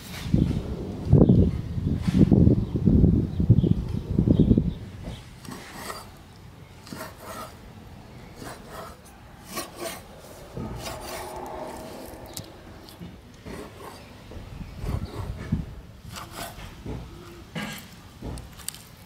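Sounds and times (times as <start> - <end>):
knife scraping wooden board: 5.4 - 6.2, 6.8 - 7.6, 8.4 - 14.1, 16.1 - 16.8.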